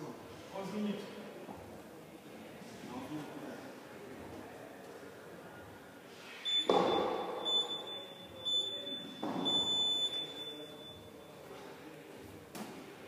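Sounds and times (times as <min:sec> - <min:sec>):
timer beeping countdown: 0:06.5 - 0:11.0.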